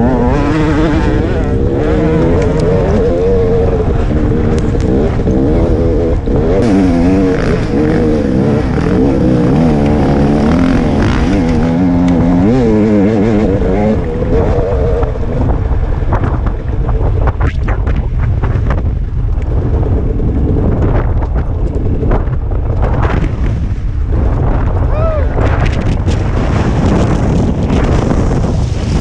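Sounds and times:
dirt bike engine revving: 0.0 - 16.4.

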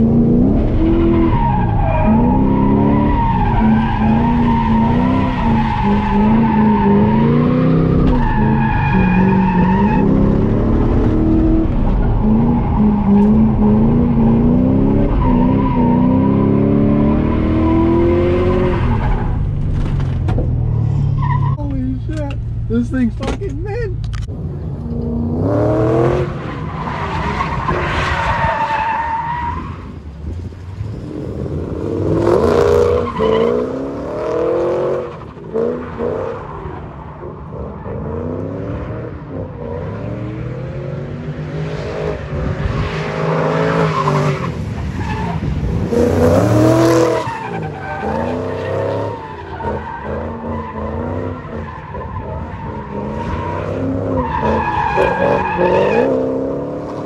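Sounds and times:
car engine revving: 0.0 - 57.0
tyres squealing and skidding: 0.5 - 19.6, 20.8 - 21.8, 25.7 - 38.4, 42.8 - 57.0.

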